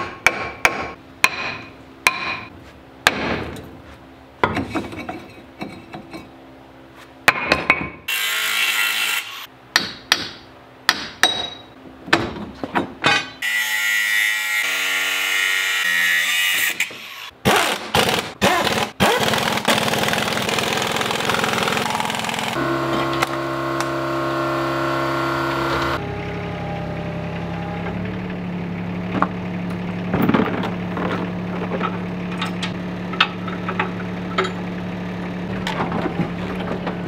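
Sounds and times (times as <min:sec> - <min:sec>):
impact wrench whirring: 0:17.5 - 0:26.0.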